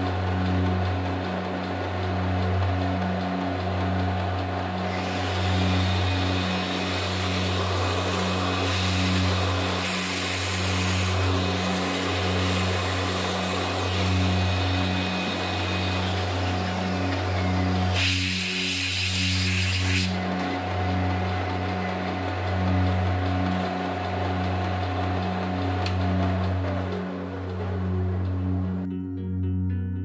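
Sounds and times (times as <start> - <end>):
milling machine cutting steel: 4.7 - 27.9
sharp hiss: 17.9 - 20.2.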